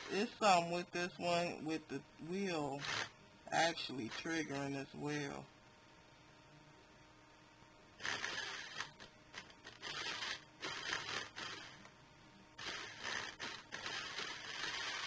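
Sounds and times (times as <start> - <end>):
small electric motor whirring: 2.8 - 3.1, 8.0 - 11.9, 12.6 - 15.0.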